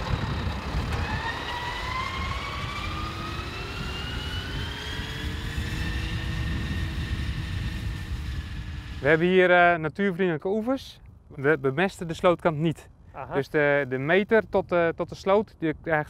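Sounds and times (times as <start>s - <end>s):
tractor engine rumble: 0.0s - 2.0s
mower whine rising in pitch: 0.0s - 9.1s.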